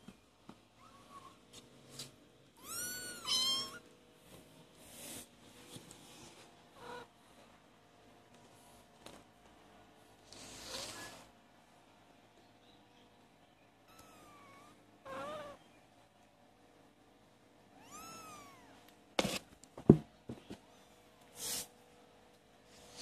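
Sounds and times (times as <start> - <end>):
kittens mewing: 13.9 - 15.6
sharp knocks and bumps: 19.2 - 20.6.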